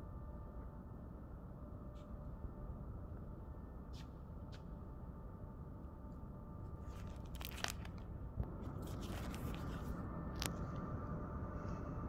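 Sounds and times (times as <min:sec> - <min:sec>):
steady low hum: 0:00.0 - 0:12.0
plastic sheet crinkling: 0:06.8 - 0:08.0, 0:08.8 - 0:09.9.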